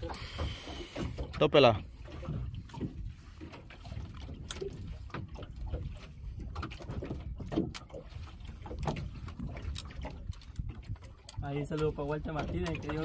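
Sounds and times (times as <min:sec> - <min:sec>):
knocks and splashes: 0:00.0 - 0:13.0
water slapping boat hull: 0:00.0 - 0:13.0.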